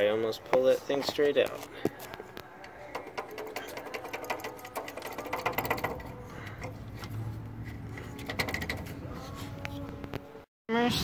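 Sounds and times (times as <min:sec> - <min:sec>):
pump shaft clicking and knocking: 0:02.0 - 0:09.0.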